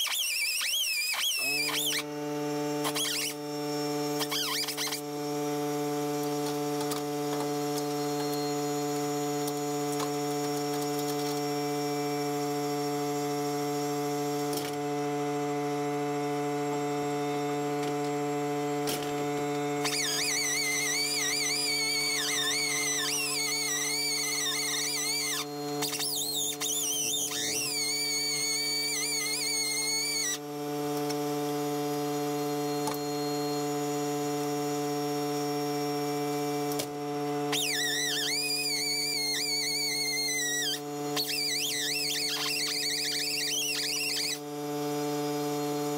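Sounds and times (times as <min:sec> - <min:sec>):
grinding disc squealing on steel: 0:00.0 - 0:02.1, 0:02.8 - 0:14.7, 0:19.3 - 0:30.4, 0:37.3 - 0:44.5
angle grinder whining: 0:00.0 - 0:45.9.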